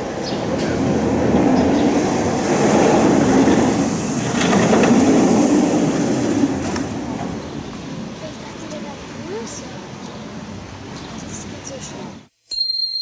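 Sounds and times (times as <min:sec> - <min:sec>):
roller coaster train rumbling: 0:00.0 - 0:12.1
wheels clicking and rattling: 0:00.5 - 0:07.6.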